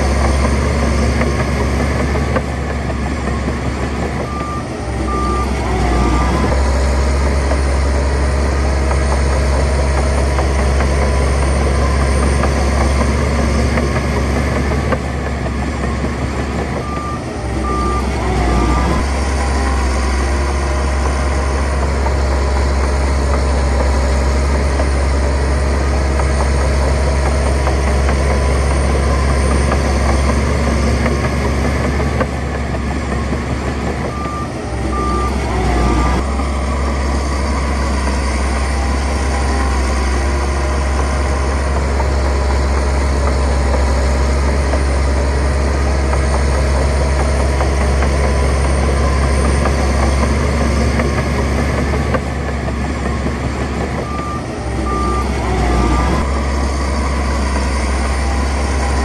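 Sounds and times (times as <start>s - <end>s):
heavy diesel machinery running: 0.0s - 59.0s
reversing alarm beeps: 3.1s - 7.6s, 15.8s - 21.8s, 33.8s - 45.1s, 47.8s - 59.0s.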